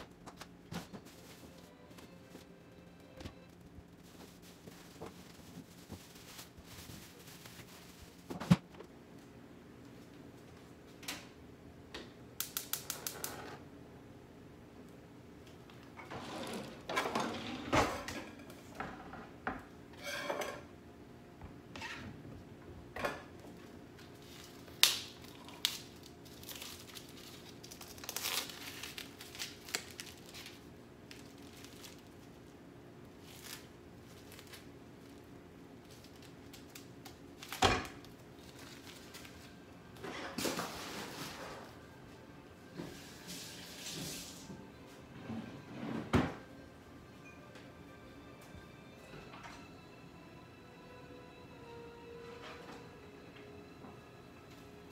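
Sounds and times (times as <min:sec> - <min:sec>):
plastic film tearing and crinkling: 0:24.1 - 0:32.5, 0:33.1 - 0:35.2, 0:35.8 - 0:39.5.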